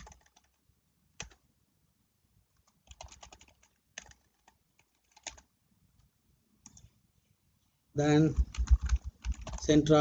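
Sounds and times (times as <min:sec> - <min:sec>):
typing on computer keyboard: 0:00.0 - 0:00.6, 0:01.2 - 0:01.4, 0:02.6 - 0:06.9, 0:08.3 - 0:09.8.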